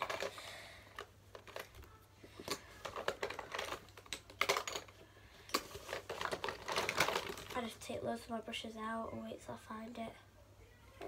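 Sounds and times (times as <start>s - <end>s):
makeup items clicking in bag: 0.0s - 7.6s.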